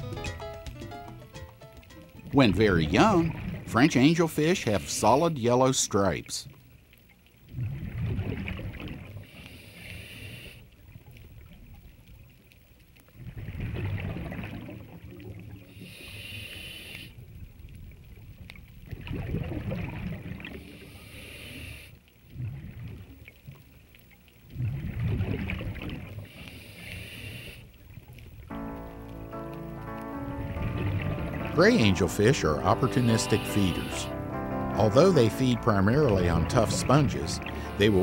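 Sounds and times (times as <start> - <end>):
exhaled bubbles rumbling: 2.2 - 4.8, 7.4 - 9.2, 13.0 - 15.7, 17.2 - 20.7, 22.2 - 23.7, 24.4 - 26.3, 27.8 - 38.0
regulator inhalation hiss: 9.4 - 10.6, 15.8 - 17.2, 26.3 - 27.6, 32.9 - 34.2.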